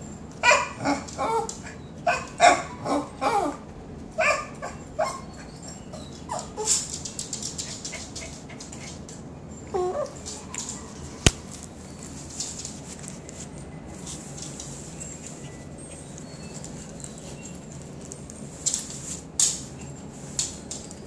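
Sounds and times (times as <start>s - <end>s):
dog whining: 0.4s - 6.9s, 9.6s - 11.0s.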